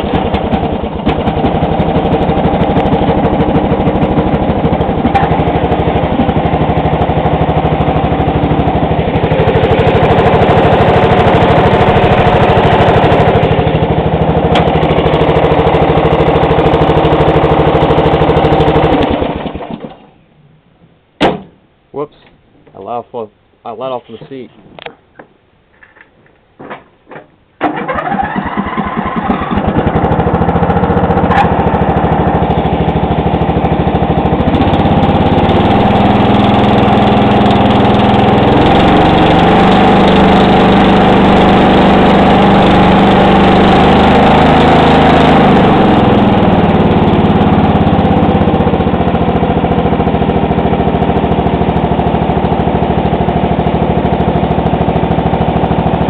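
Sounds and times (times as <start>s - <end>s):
mower engine running: 0.0s - 20.1s, 27.6s - 56.0s.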